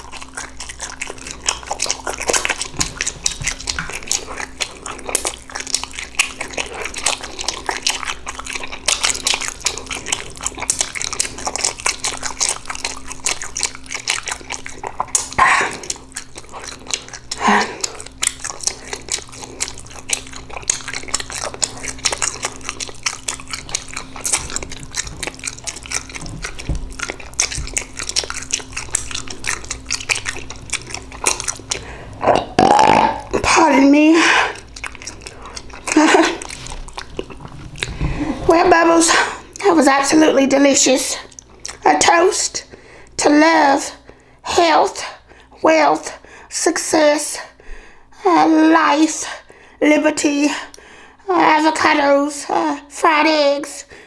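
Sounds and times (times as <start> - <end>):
wet lip smacking: 0.0 - 40.3, 41.1 - 42.1
close-miked chewing: 0.0 - 47.6
sliding voiced mouth sounds: 20.3 - 39.7.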